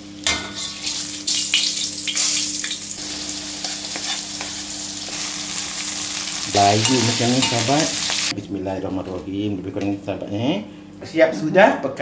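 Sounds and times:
oil sizzling in a wok: 0.0s - 8.3s.

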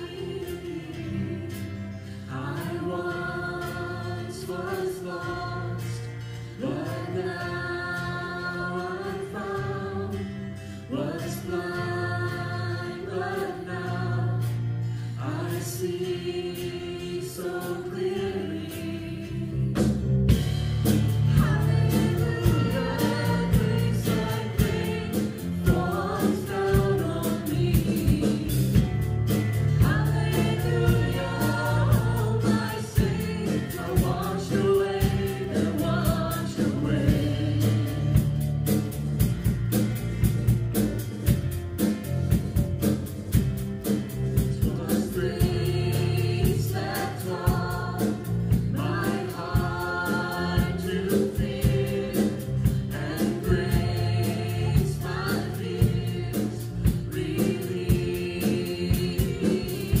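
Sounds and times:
voices singing together: 0.0s - 39.0s, 43.8s - 60.0s
band playing drums bass guitar: 18.7s - 60.0s.

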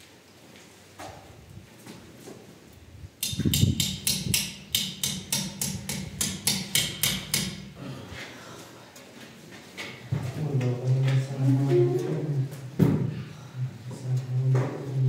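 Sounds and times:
hammer striking a nail: 3.2s - 7.8s.

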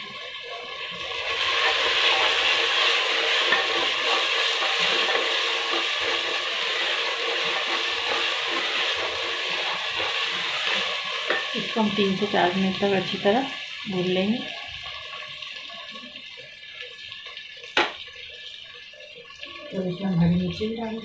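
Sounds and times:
lentils sizzling in a pot: 0.0s - 21.0s
wooden spatula scraping a pot: 1.4s - 11.8s.

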